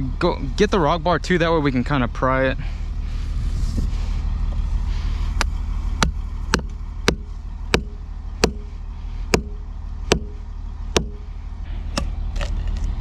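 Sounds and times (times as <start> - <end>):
low engine hum: 0.0 - 13.0
hammer striking steel chisel: 6.0 - 8.7, 9.3 - 10.4.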